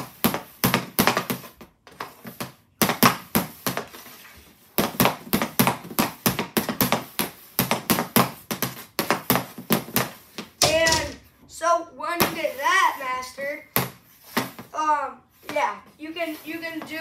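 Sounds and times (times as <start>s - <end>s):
hockey stick tapping puck: 0.0s - 4.0s, 4.7s - 11.3s, 12.2s - 12.6s.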